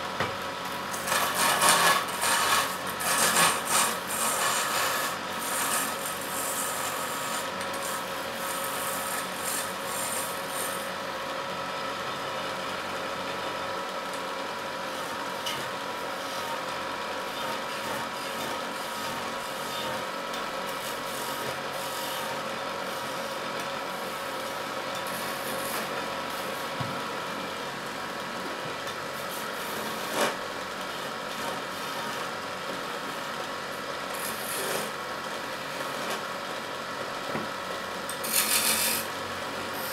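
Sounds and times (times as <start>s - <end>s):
lathe hum: 0.4s - 11.8s, 12.4s - 36.1s
turning tool rasping on wood: 0.9s - 10.9s, 34.2s - 34.9s, 38.1s - 39.1s.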